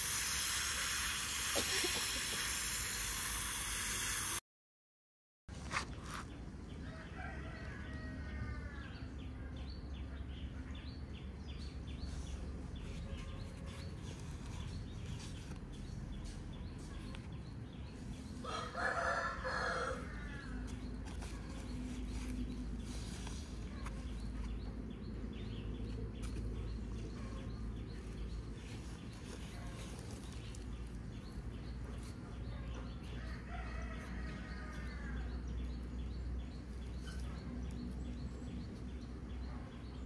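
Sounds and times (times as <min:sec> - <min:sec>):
rooster crowing: 0:06.9 - 0:09.0, 0:18.4 - 0:20.6.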